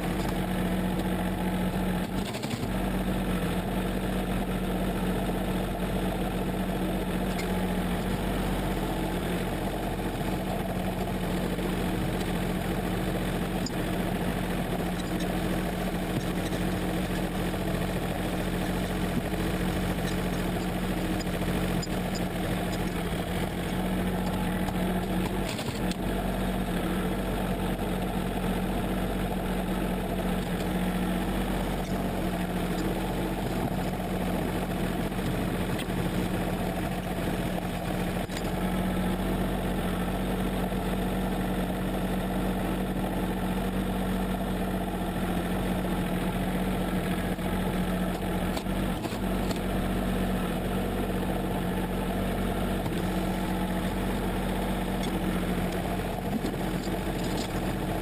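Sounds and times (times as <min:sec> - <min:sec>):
loader scooping snow: 0:00.0 - 0:58.0
tractor diesel engine running: 0:00.0 - 0:58.0.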